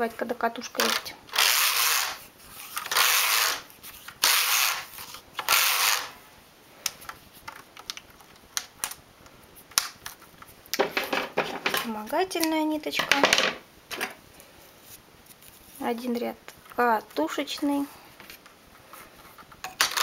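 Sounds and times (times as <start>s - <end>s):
metal needles clicking: 0.7s - 2.2s, 2.8s - 6.2s.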